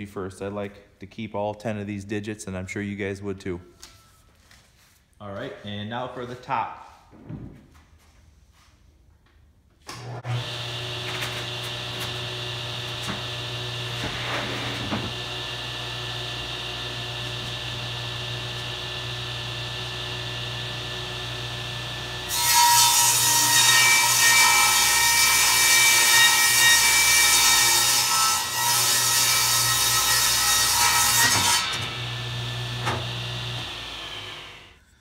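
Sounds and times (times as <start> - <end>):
table saw motor humming: 10.0 - 23.6, 29.6 - 34.8
saw blade cutting plywood: 10.3 - 34.8.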